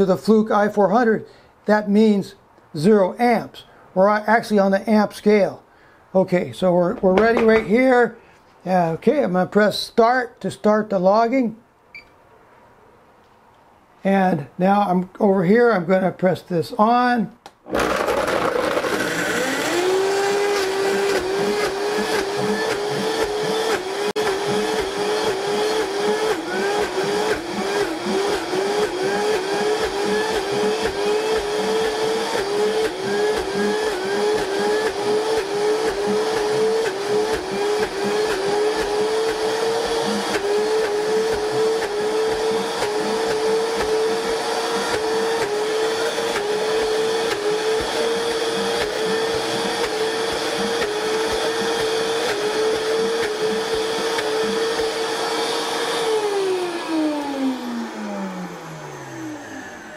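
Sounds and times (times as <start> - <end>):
blender crushing ice: 17.6 - 59.9.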